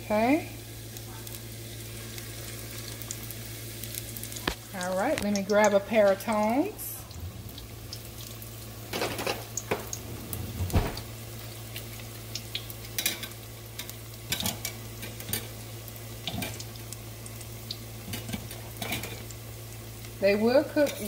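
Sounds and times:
corn dogs deep-frying in oil: 0.0 - 21.0
low hum: 5.8 - 11.6
clacks and scrapes against pot: 18.1 - 19.2.

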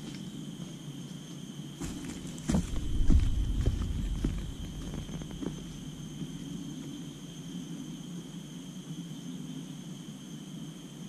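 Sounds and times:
forest insects droning: 0.0 - 11.0
footsteps crunching on dry leaves: 1.8 - 6.2.

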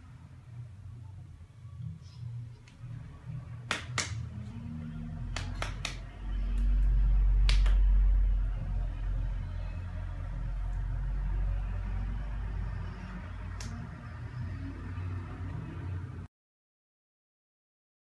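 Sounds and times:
faint steady hum: 0.0 - 16.3
hands slapping together: 3.7 - 4.3, 5.3 - 6.7, 7.5 - 7.8, 13.6 - 13.8
deep low rumble: 6.0 - 16.2.

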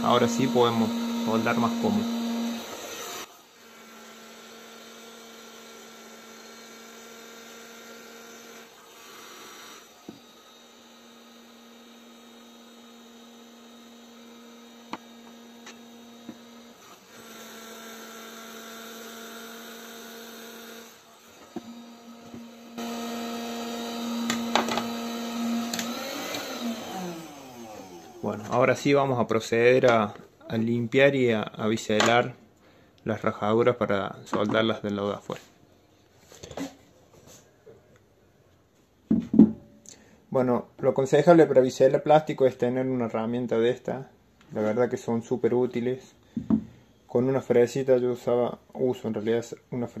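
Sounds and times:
blower motor humming: 0.0 - 28.7.

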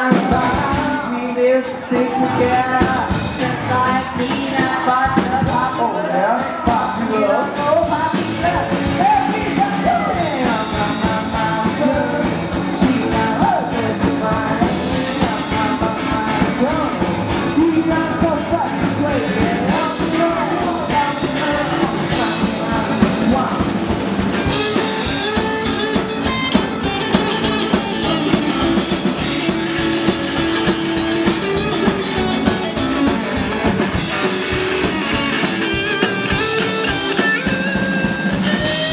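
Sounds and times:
man singing: 0.0 - 23.8
drum kit: 0.0 - 38.9
electric guitar: 0.0 - 38.9.

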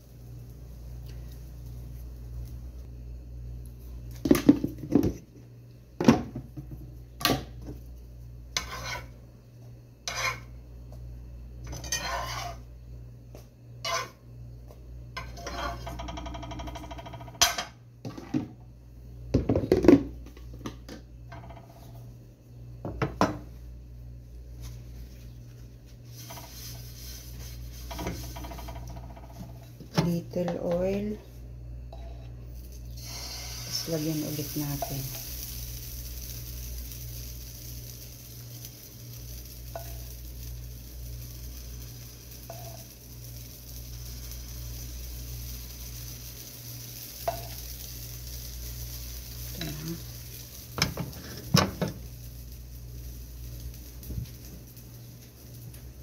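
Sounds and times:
steady low hum: 0.0 - 56.0
utensil scraping: 8.6 - 9.2, 10.1 - 10.5, 11.7 - 12.6, 13.8 - 14.2, 26.0 - 28.4
metal utensils knocking on pan: 15.7 - 17.7.

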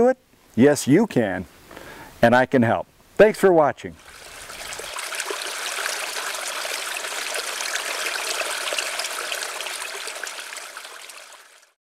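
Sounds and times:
water running and trickling: 4.0 - 11.8.

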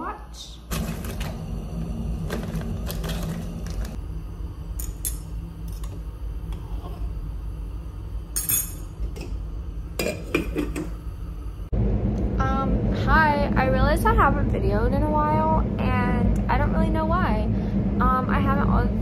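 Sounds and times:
steady low hum: 0.0 - 19.0
metal spoon clinking on saucepan: 8.4 - 9.3.

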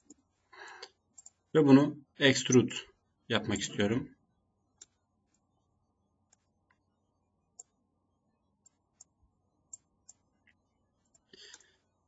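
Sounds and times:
computer mouse clicks: 0.8 - 1.4, 4.8 - 5.4, 6.3 - 6.8, 7.6 - 7.8, 8.6 - 11.8.

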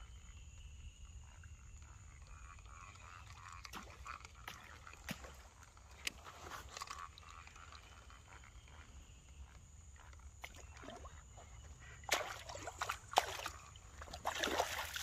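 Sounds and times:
fish splashing at water surface: 12.1 - 15.0.

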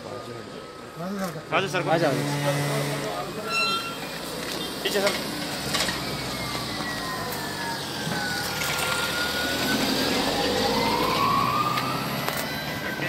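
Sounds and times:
police siren wailing: 4.8 - 13.0.

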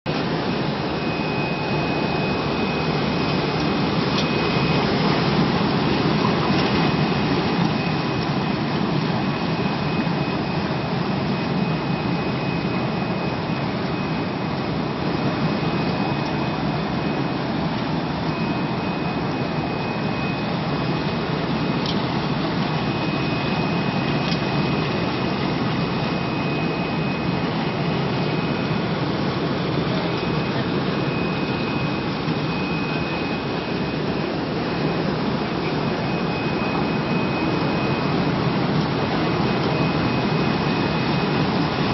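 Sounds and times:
faint high whine: 0.1 - 41.9
water churning and bubbling: 0.1 - 41.9.

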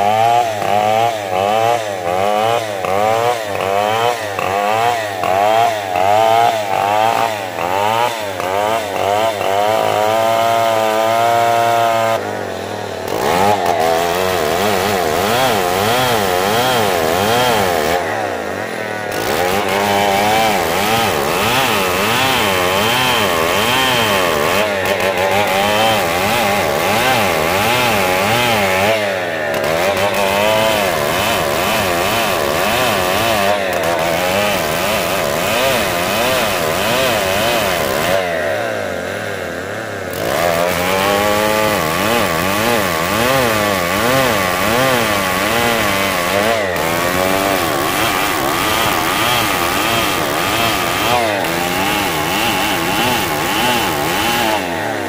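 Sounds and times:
chainsaw cutting log: 0.0 - 55.0.

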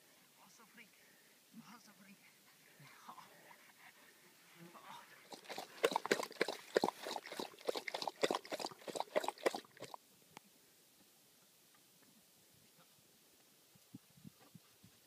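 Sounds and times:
dog lapping water: 5.2 - 10.0.

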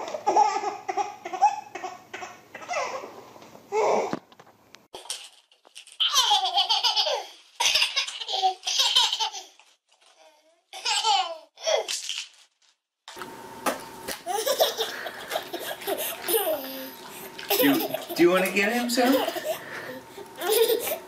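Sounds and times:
baby laughing: 0.0 - 3.1, 6.0 - 9.7, 10.7 - 12.0, 14.1 - 18.3, 19.0 - 21.0
toddler laughing: 6.0 - 9.6, 10.8 - 11.9, 14.2 - 18.2, 19.0 - 21.0
faint steady hum: 13.2 - 21.0.

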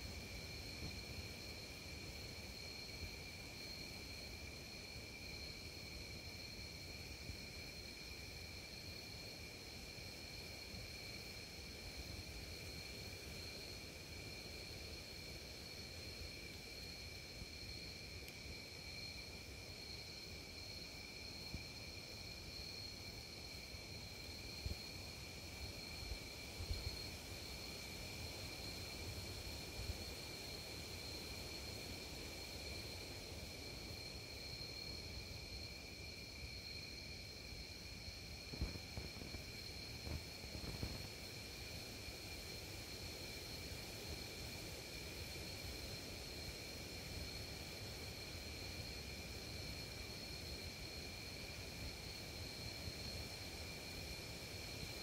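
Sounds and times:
crickets chirping: 0.0 - 55.0
wind rumble on microphone: 38.4 - 41.2.

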